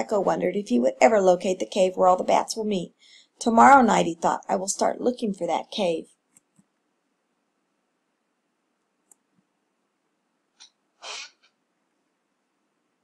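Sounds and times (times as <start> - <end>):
short breathy burst: 11.0 - 11.5.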